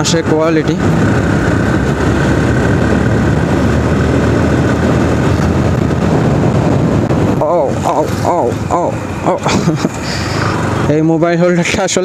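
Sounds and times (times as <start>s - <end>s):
motorcycle engine running: 0.0s - 11.2s
wind rush: 0.0s - 11.9s.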